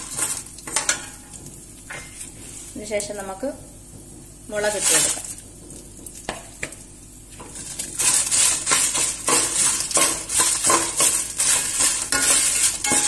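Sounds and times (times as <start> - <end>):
chillies frying in oil: 0.0 - 13.0
spoon scraping a steel pan: 8.0 - 13.0.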